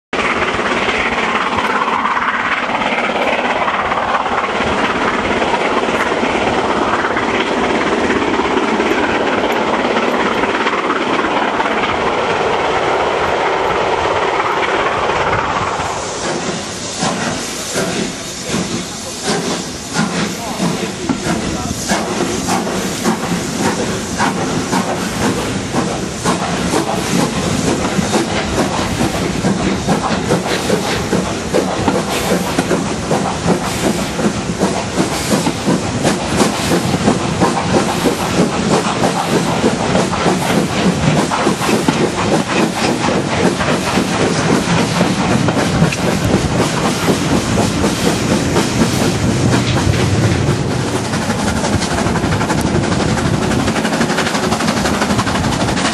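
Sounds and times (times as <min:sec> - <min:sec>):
steam hiss: 0:00.2 - 0:55.9
steam locomotive exhaust beats: 0:00.2 - 0:55.9
wheels clattering on track: 0:20.0 - 0:55.9.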